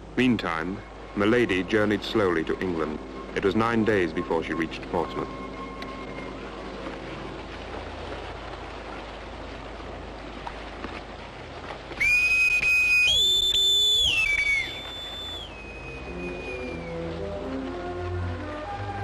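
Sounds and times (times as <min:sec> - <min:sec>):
man whistling with fingers: 0:12.0 - 0:17.1.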